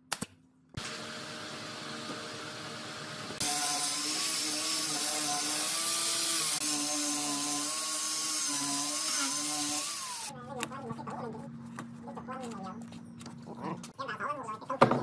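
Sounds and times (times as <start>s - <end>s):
angle grinder sanding wood: 0.9s - 10.3s.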